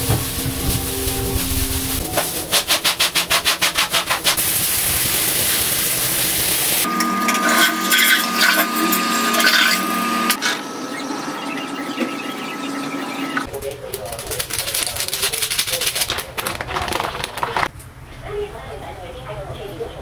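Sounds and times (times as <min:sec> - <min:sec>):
scrubbing tiled floor: 0:00.0 - 0:10.6, 0:14.0 - 0:17.7.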